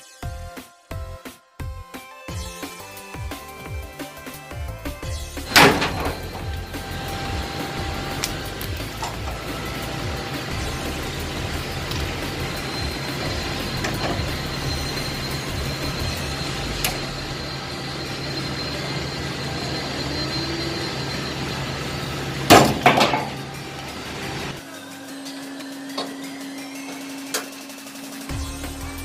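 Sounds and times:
steady low hum: 0:04.9 - 0:24.6.

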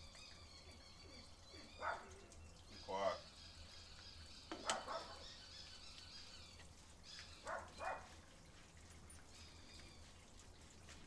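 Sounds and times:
faint birds chirping: 0:00.0 - 0:11.0
hands scrubbing wet dog's coat: 0:07.2 - 0:11.0.

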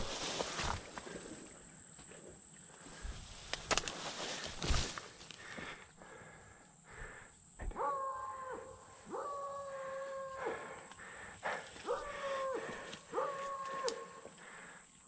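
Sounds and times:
dog howling: 0:07.7 - 0:10.7, 0:11.8 - 0:14.2.

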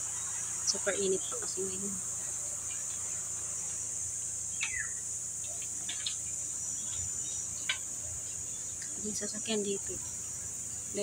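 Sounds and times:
insects droning: 0:00.0 - 0:11.0
bird chirps: 0:04.5 - 0:11.0.

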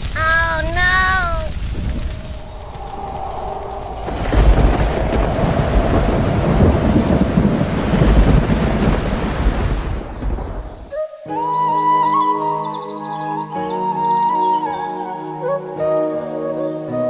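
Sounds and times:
heavy rain: 0:00.0 - 0:11.0
rolls of thunder: 0:01.5 - 0:11.0.

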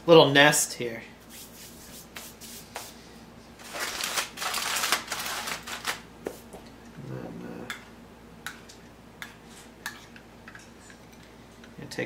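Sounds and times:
aluminum foil crinkling: 0:03.6 - 0:06.0.

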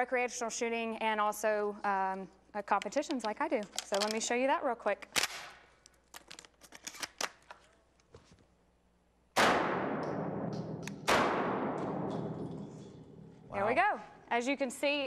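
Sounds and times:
faint gun handling clicks: 0:02.8 - 0:04.3
shotgun shots echoing indoors: 0:09.3 - 0:13.5.

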